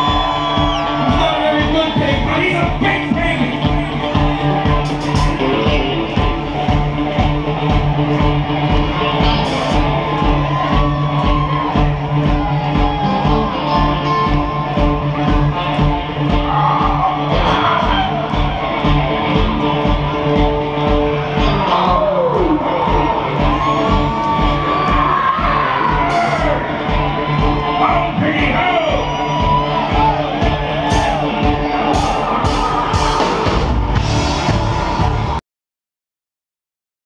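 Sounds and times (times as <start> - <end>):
electric guitar: 0.0 - 35.4
steady drum beat: 0.0 - 35.4.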